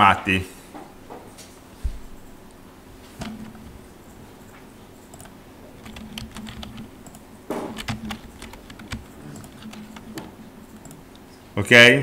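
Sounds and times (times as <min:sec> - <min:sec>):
faint low hum: 0:00.0 - 0:12.0
keyboard and mouse clicking: 0:03.2 - 0:03.7, 0:05.0 - 0:11.2.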